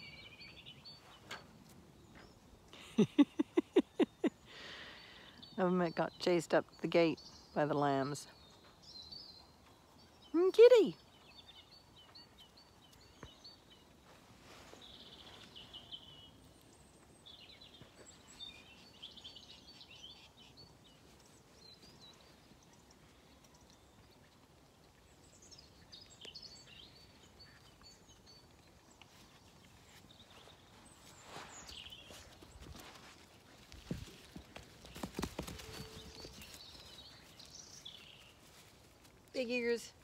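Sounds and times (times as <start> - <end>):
faint birdsong: 0.0 - 40.0
light rustles and ticks: 16.4 - 40.0.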